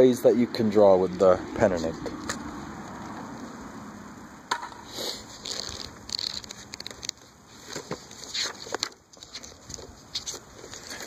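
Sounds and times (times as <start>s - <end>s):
paper pages rustling: 5.1s - 11.0s.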